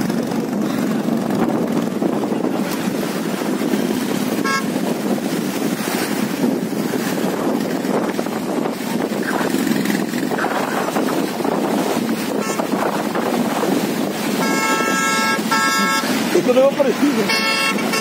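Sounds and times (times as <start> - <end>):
fast stream rushing: 0.0 - 18.0
motorcycle engines running: 0.0 - 18.0
short high horn toot: 14.4 - 16.1, 17.2 - 18.0.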